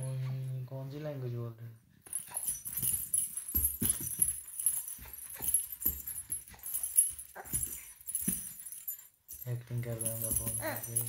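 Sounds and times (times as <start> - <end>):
metal bangles jingling: 2.0 - 11.0
soft thuds and rustling: 2.1 - 11.0.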